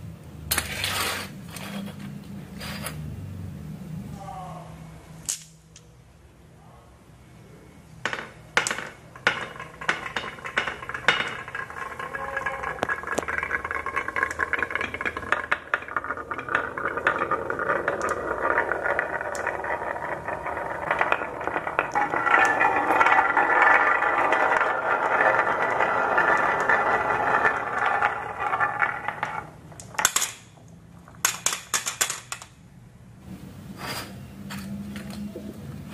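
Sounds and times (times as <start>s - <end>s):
marbles rolling on wooden track: 8.0s - 32.5s
marbles clicking: 8.1s - 30.5s.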